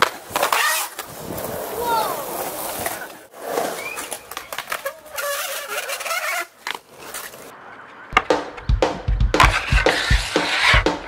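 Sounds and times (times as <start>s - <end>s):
skateboard wheels rolling: 0.0s - 11.0s
skateboard clacks and knocks: 7.8s - 11.0s.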